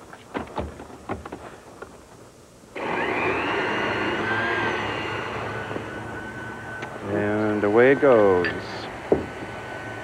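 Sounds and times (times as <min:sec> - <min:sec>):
blender motor whining: 0:02.8 - 0:10.0.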